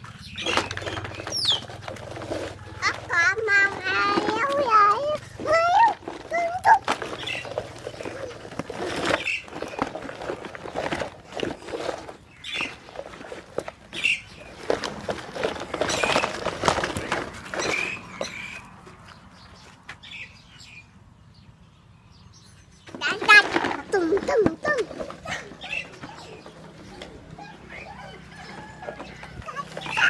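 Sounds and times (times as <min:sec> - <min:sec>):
toy truck wheels crunching on gravel: 0:00.0 - 0:20.8, 0:22.9 - 0:30.0
plastic toy body rattling: 0:00.4 - 0:18.1, 0:22.9 - 0:27.5.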